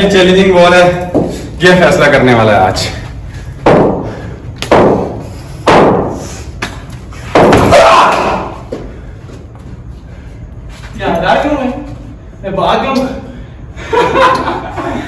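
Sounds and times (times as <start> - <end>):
cricket balls striking bats: 3.6 - 8.9.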